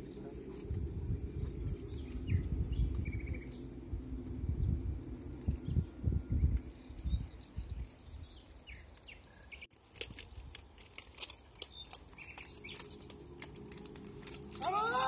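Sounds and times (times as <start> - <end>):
faint low rumble: 0.0 - 9.0
birds chirping: 0.0 - 9.7, 11.4 - 15.0
small clicks and crackles: 8.3 - 15.0.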